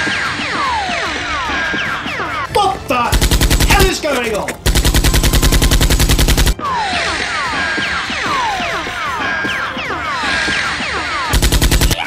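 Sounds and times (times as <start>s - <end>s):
music with falling chirps: 0.0s - 12.0s
machine-gun fire bursts: 3.1s - 6.6s, 11.3s - 12.0s.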